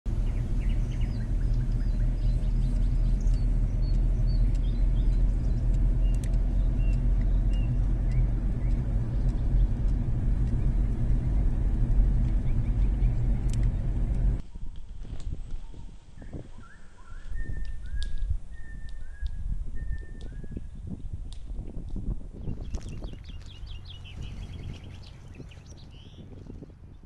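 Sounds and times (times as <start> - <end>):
car driving low rumble: 0.1 - 14.4, 20.9 - 27.0.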